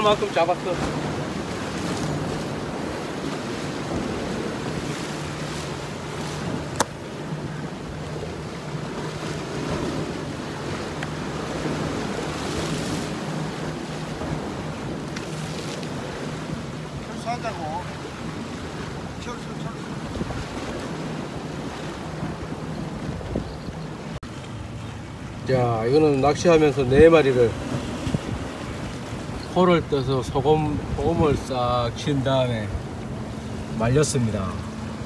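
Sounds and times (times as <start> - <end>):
surf washing against rocks: 0.0 - 35.0
wind noise on microphone: 20.0 - 24.2, 26.9 - 29.5.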